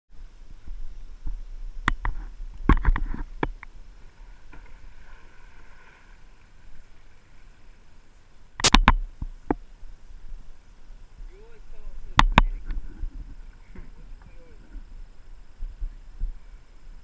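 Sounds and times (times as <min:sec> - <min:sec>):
paddle splashing water: 0:02.4 - 0:10.0
kayak paddle knocks: 0:12.1 - 0:12.8.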